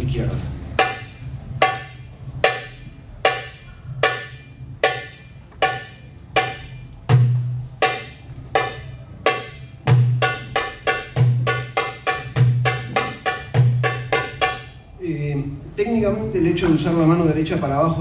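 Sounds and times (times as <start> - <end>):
darbuka deep bass strokes: 0.0 - 14.9
darbuka high strokes: 0.6 - 15.0.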